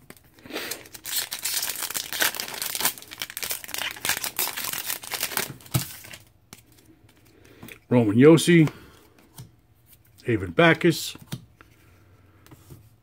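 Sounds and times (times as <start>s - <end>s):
foil wrapper crackling: 0.7s - 6.2s.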